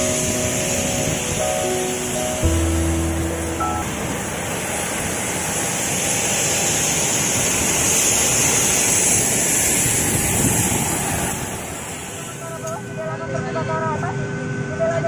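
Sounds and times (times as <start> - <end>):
rushing aircraft noise: 0.0 - 14.8
wind buffeting microphone: 9.7 - 11.8.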